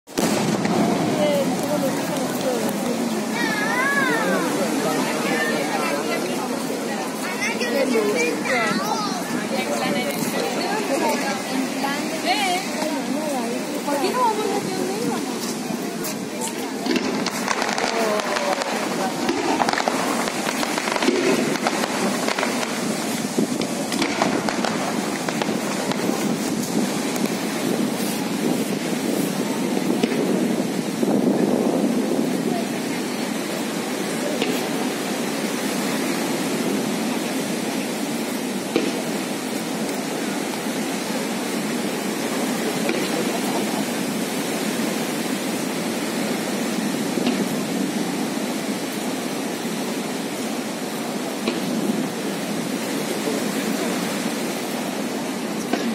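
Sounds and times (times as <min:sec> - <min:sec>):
fireworks fountains hissing and crackling: 0:00.0 - 0:55.9
faint firework pops: 0:00.1 - 0:03.0, 0:16.4 - 0:28.3, 0:29.9 - 0:30.4, 0:34.4 - 0:34.8, 0:38.7 - 0:39.2, 0:42.8 - 0:43.3, 0:47.2 - 0:47.6, 0:51.4 - 0:51.9, 0:55.6 - 0:55.9
steady rushing noise: 0:00.1 - 0:55.9.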